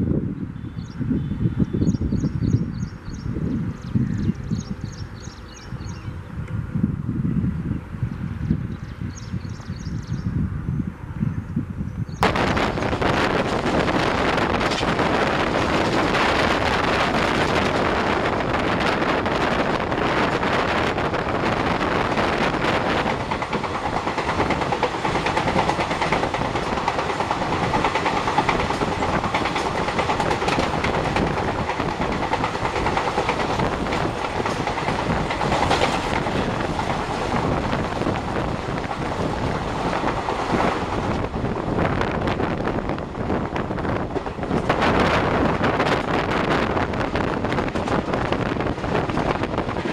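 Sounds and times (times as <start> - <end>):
wind on microphone: 0.0 - 49.9
train coaches clattering over rails: 12.2 - 49.9.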